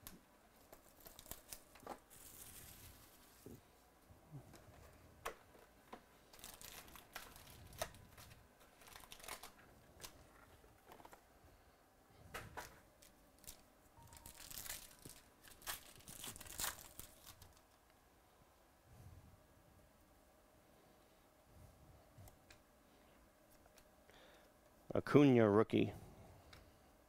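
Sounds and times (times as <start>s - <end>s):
foil packs tearing and crinkling: 0.6s - 3.4s, 6.3s - 10.2s, 13.4s - 17.7s.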